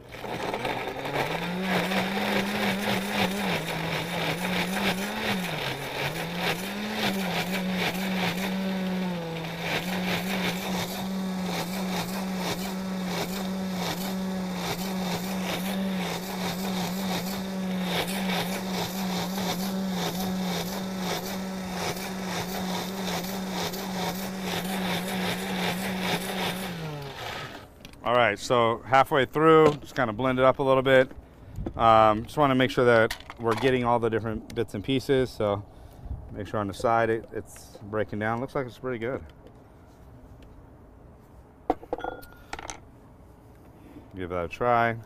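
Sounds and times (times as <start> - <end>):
blender motor running: 0.0 - 27.7.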